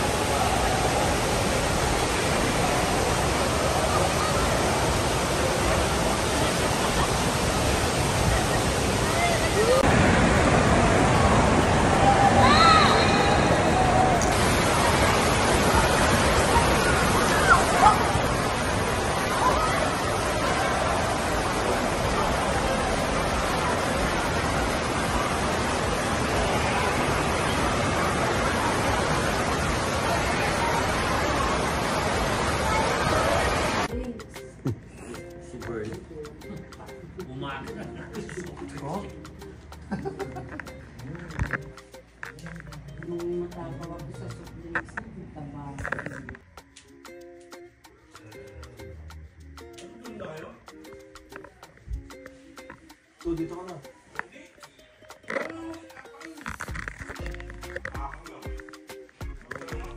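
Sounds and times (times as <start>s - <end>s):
churning water rushing: 0.0s - 34.0s
faint voices: 0.0s - 35.6s.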